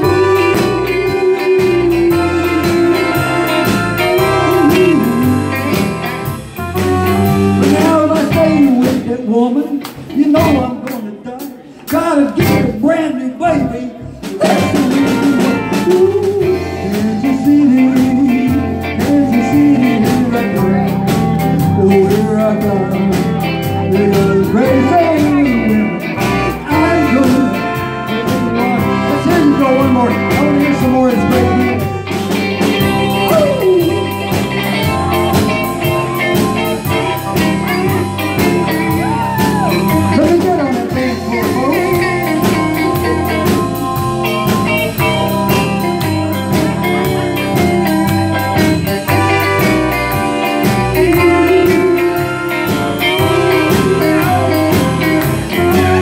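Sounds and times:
live blues band playing: 0:00.0 - 0:56.0.

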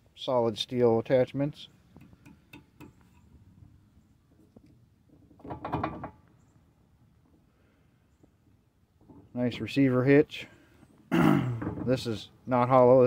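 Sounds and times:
light clicks and knocks on steel: 0:01.9 - 0:03.3
metal clunk and rattle: 0:05.1 - 0:06.3, 0:11.4 - 0:12.1.

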